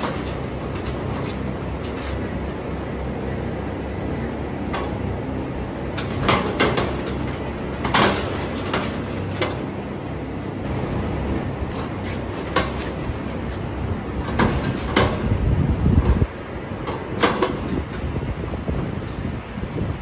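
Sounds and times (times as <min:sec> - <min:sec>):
metal knocks and rattles: 0:00.0 - 0:02.7, 0:05.7 - 0:09.9, 0:11.7 - 0:18.1
steady low rumble: 0:00.0 - 0:20.0.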